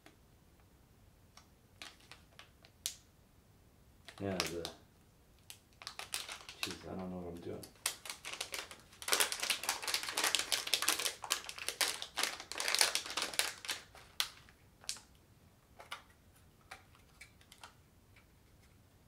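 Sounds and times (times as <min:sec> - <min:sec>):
plastic packaging crinkling: 0:04.1 - 0:04.8, 0:05.5 - 0:15.1.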